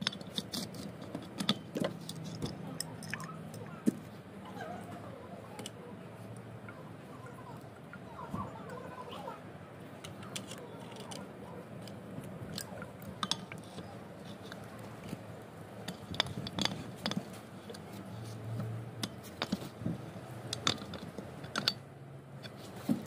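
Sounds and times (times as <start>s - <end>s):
metal plumbing fittings clicking: 11.8s - 14.7s.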